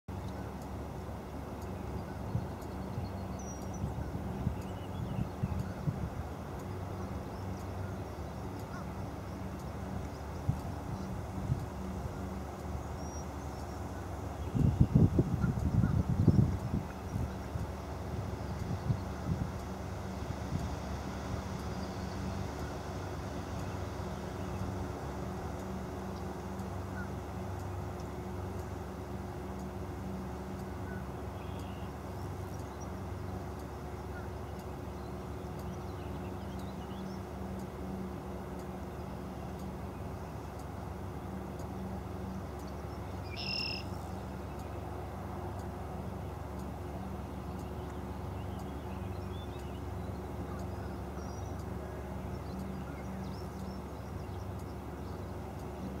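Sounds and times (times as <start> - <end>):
light regular ticks: 0.1 - 56.0
low mechanical hum: 0.1 - 56.0
faint bird chirps: 1.6 - 5.9, 30.1 - 38.1, 38.8 - 45.0, 47.3 - 56.0
faint high chirps: 42.6 - 44.9.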